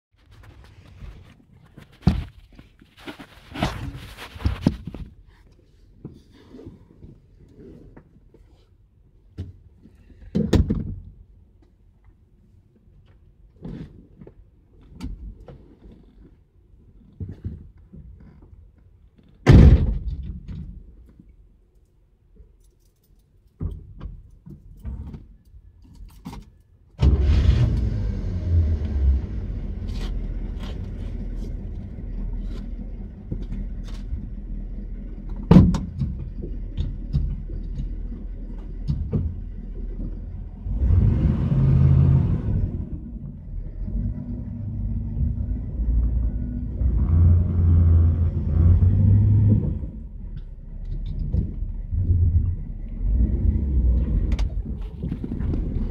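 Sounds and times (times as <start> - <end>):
small clicks and rattles: 21.1 - 26.7
car engine rumbling: 27.0 - 55.9.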